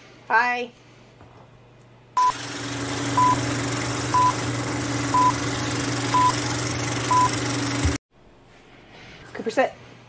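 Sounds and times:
short high beeps: 0:04.2 - 0:04.4.

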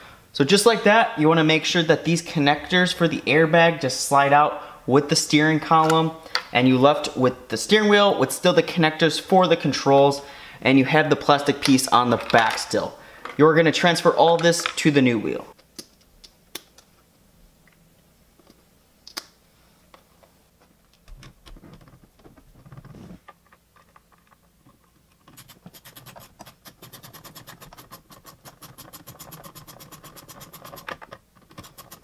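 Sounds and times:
hand ratchet clicking: 0:25.3 - 0:32.0.

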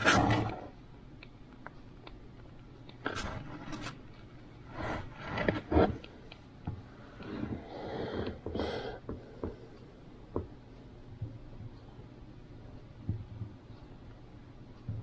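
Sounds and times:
rustling and scraping: 0:03.0 - 0:06.2, 0:07.0 - 0:08.6.

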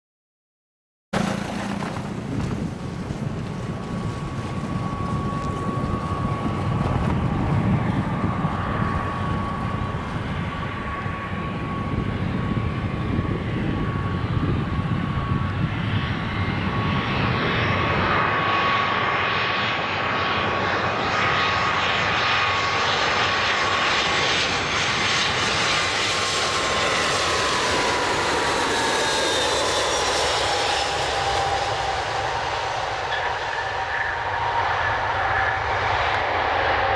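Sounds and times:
jet engines whining: 0:01.2 - 0:36.9.

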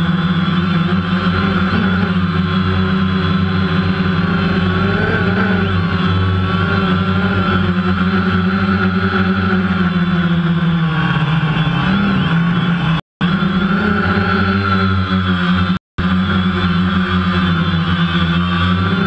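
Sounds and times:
drone propellers whirring: 0:00.0 - 0:19.0.

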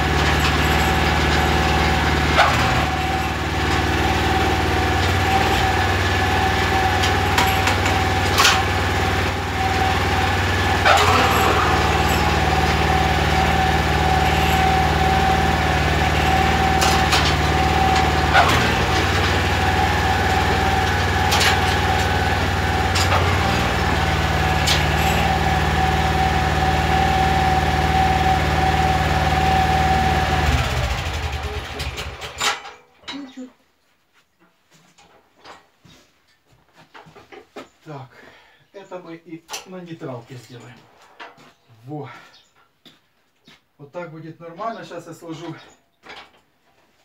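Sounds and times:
small petrol engine idling: 0:00.0 - 0:32.4.

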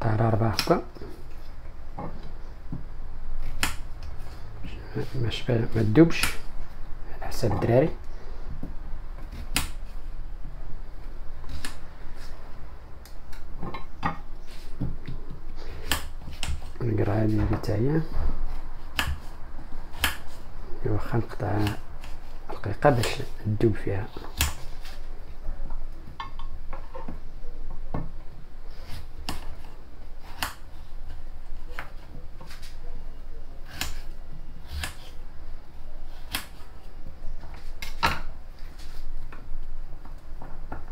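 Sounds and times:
low steady hum: 0:00.0 - 0:40.9
knife cutting on a cutting board: 0:33.6 - 0:35.2.

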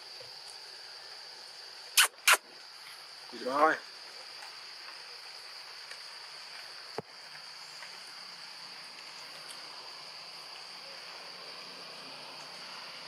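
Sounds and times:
constant hiss: 0:00.0 - 0:13.0
insect chorus drone: 0:00.0 - 0:13.0
sharp click: 0:02.0 - 0:02.4.

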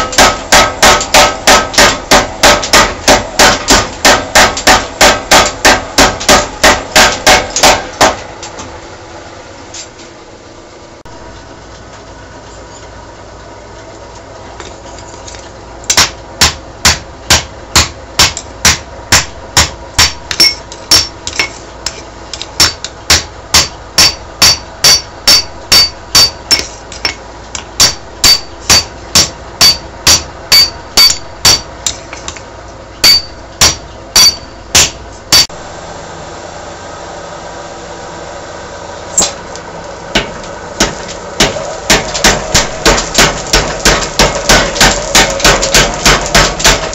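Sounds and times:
steady running noise: 0:00.0 - 0:46.9
hammer blows on metal: 0:27.8 - 0:32.0.

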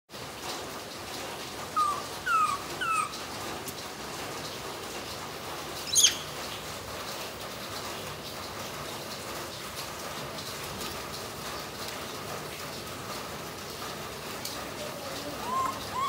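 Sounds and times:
baby monkey squeaky calls: 0:01.8 - 0:03.2, 0:05.9 - 0:06.3, 0:15.4 - 0:16.0.

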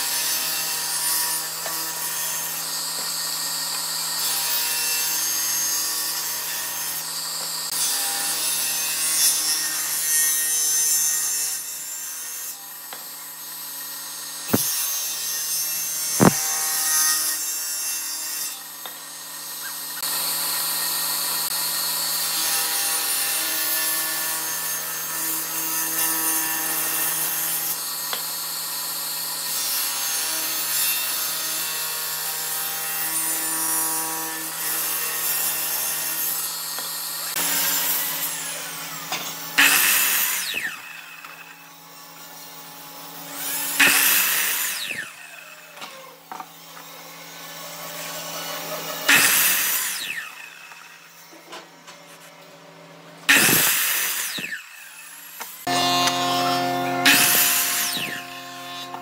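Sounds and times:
table saw motor hum: 0:12.9 - 0:17.4, 0:43.0 - 0:59.0
saw blade ripping through wood: 0:14.4 - 0:18.7, 0:47.5 - 0:51.5, 0:53.3 - 0:59.0
sharp knocks: 0:14.5 - 0:14.7, 0:16.2 - 0:16.4.

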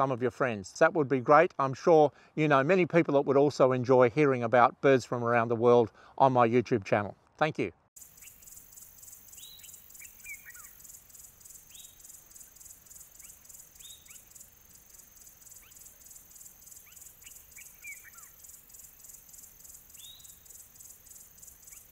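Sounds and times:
pulsing insect chorus: 0:08.0 - 0:21.9
down-slurred bird whistles: 0:16.8 - 0:18.3.

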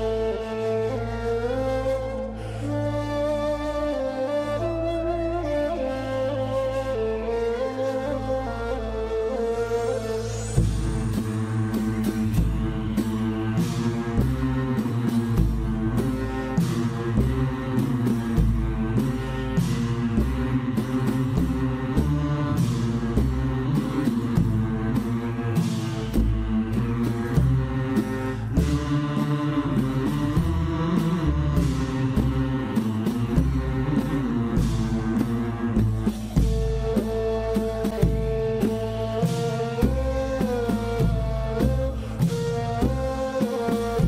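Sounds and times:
instrumental music with beat: 0:09.6 - 0:44.0.

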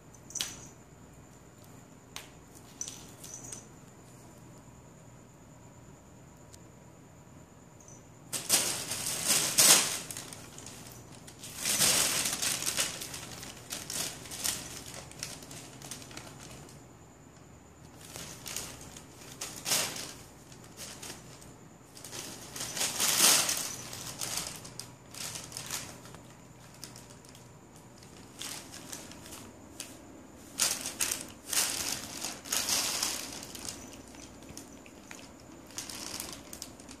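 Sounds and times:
plastic bag crinkling: 0:08.3 - 0:16.8, 0:17.9 - 0:37.0.

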